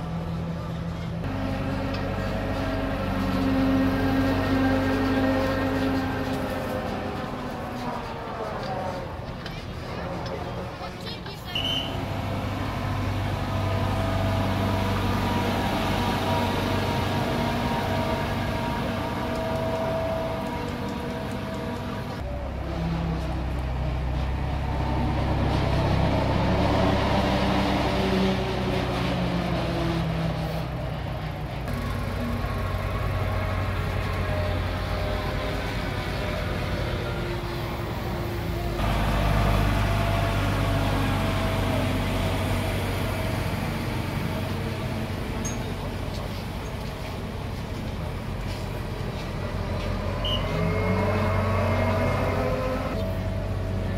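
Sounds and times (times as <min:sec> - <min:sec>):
engine droning steadily: 0:00.0 - 0:53.9.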